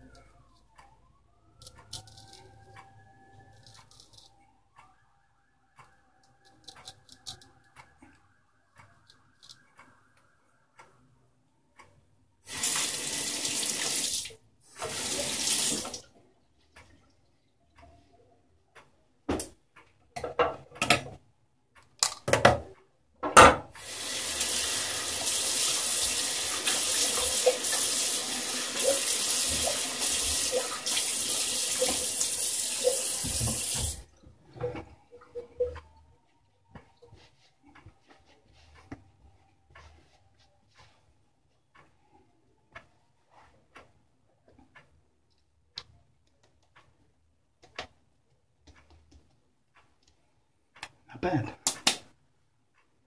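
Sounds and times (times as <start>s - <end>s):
wall clock ticking: 0.0s - 12.5s, 14.5s - 53.0s
sink tap running: 12.5s - 14.2s, 14.8s - 16.0s, 23.8s - 34.1s.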